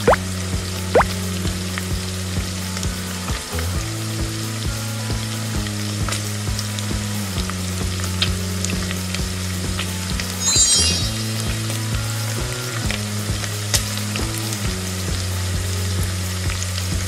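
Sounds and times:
background music with bass and beat: 0.0 - 17.0
frying sizzle: 0.0 - 17.0.

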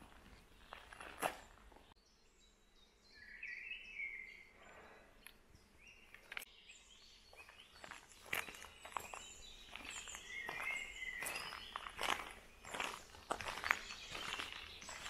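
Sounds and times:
footsteps on gravel: 0.0 - 1.9, 7.3 - 15.0
bird warbling and chirping: 5.8 - 15.0.

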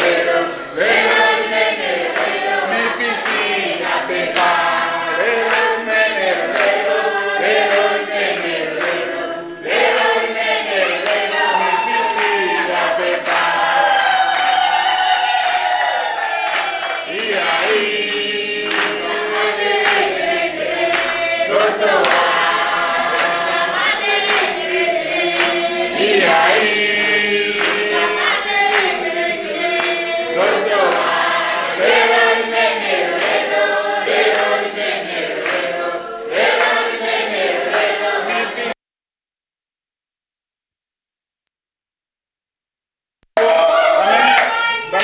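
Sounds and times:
hand claps: 0.0 - 2.6, 3.2 - 5.8, 6.5 - 14.7, 15.4 - 20.2, 20.8 - 31.2, 31.9 - 35.7, 36.4 - 38.0
group singing a chant: 0.0 - 38.8.

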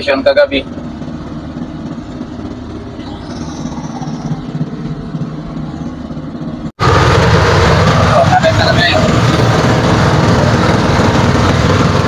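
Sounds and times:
boat engine low pulsing drone: 0.0 - 12.0.

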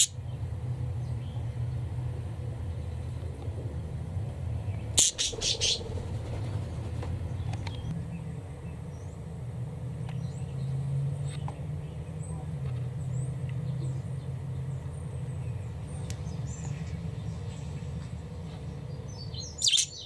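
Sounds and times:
steady low hum: 0.0 - 20.0
budgies chirping: 4.7 - 6.4, 18.8 - 20.0.

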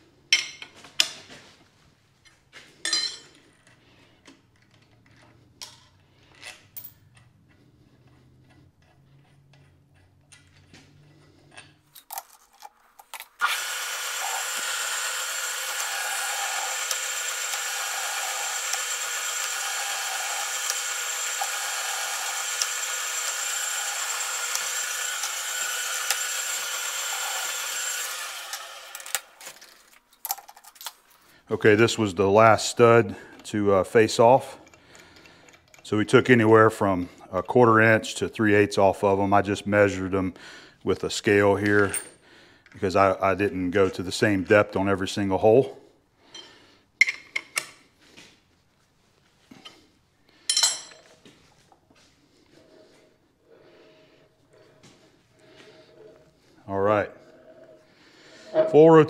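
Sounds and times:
power tool cutting steel: 13.4 - 29.8.

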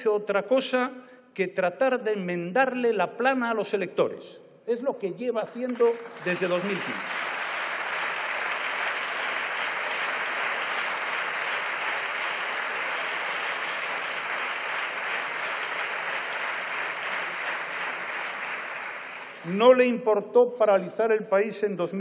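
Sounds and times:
crowd applause: 5.9 - 19.5.

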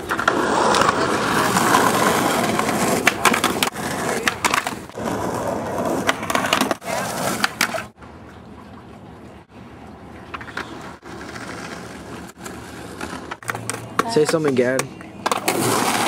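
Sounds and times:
skateboard clacks: 0.0 - 8.0, 10.2 - 16.0
skateboard wheels rolling on concrete: 0.0 - 16.0.

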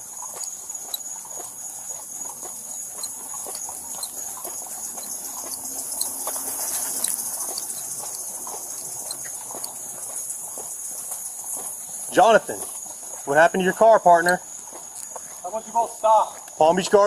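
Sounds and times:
footsteps on pavement: 0.0 - 17.0
night insects chirping: 0.0 - 17.0.

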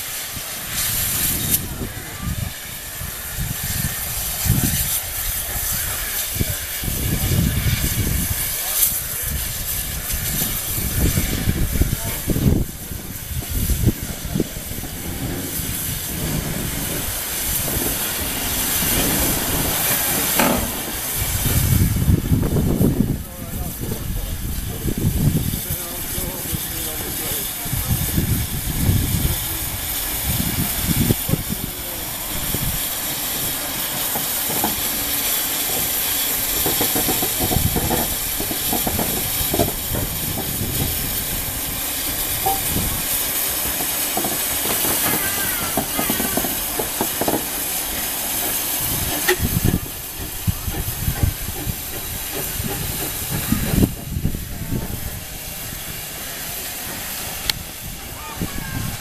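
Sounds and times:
steam hissing: 0.0 - 59.0
locomotive low thumps: 11.1 - 25.6, 35.7 - 58.2.

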